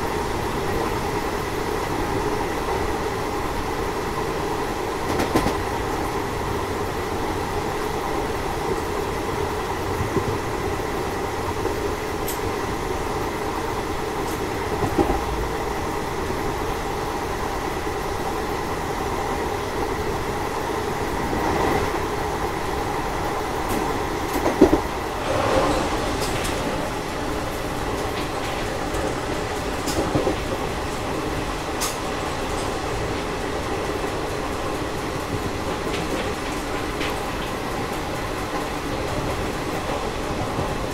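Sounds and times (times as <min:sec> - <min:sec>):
train wheels rumbling on rail: 0:00.0 - 0:40.9
train wheel knocks: 0:05.1 - 0:05.6.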